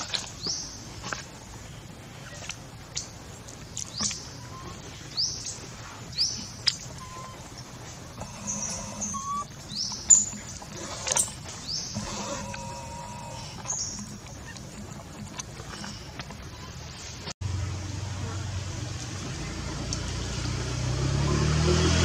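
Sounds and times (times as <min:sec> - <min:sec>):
bird chirping: 0:03.8 - 0:17.1.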